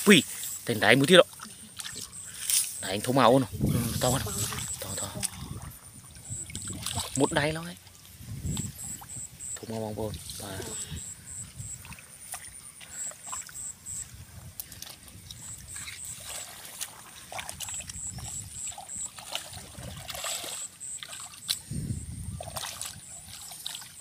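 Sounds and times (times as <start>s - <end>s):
hands splashing in muddy water: 3.8s - 7.6s, 14.6s - 24.0s.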